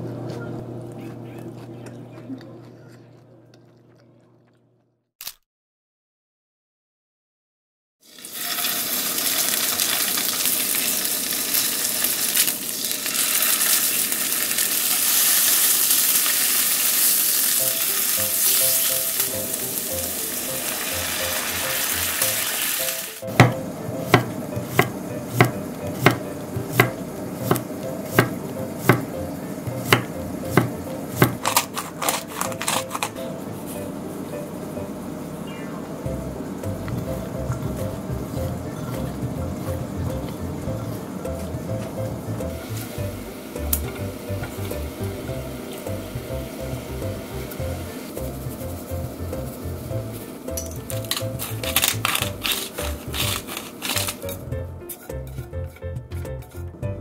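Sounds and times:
fish sizzling in frying pan: 0:08.0 - 0:28.5, 0:42.5 - 0:54.4
knife chopping on wooden board: 0:23.3 - 0:32.9.

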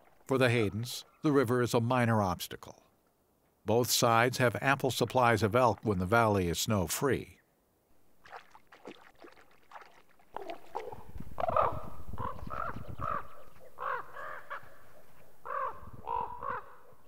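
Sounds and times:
ravens croaking and cawing: 0:10.3 - 0:17.0.

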